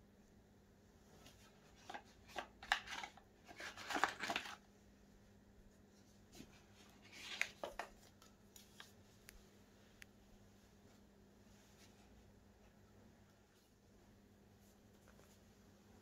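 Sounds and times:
paper rustling on cardboard: 1.2s - 4.6s, 6.0s - 9.0s.

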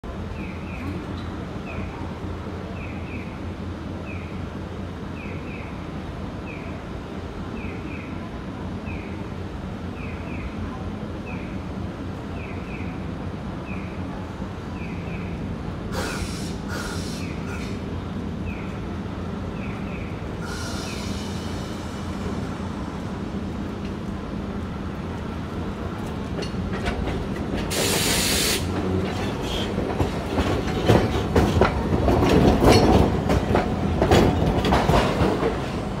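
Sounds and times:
tram humming: 0.0s - 36.0s
air hiss burst: 15.9s - 17.8s, 27.7s - 28.7s
wheels clacking over rail joints: 24.9s - 36.0s.

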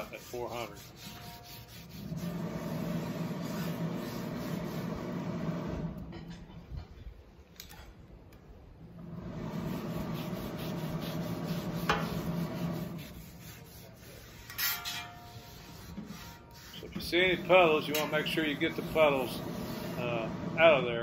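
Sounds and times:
towel rubbing on steel griddle: 0.0s - 6.0s, 9.1s - 21.0s.

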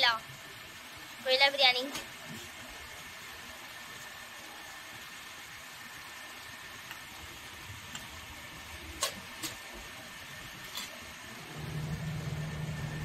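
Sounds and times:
low steady hum: 11.2s - 13.0s.

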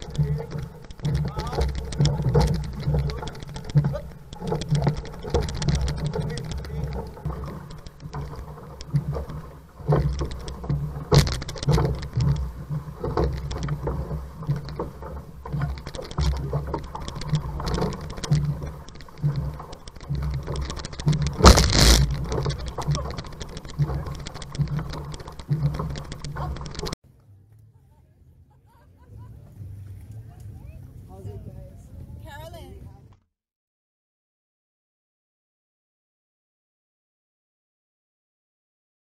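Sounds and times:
paddle strokes splashing water: 0.0s - 27.0s
water rushing past hull: 0.0s - 27.0s.

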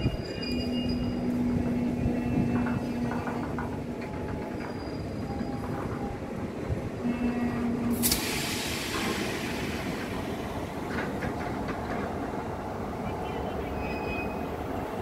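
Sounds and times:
faint squealing tones: 0.0s - 6.3s
train wheels rumbling on rails: 0.0s - 15.0s
loud hiss: 7.9s - 10.6s.

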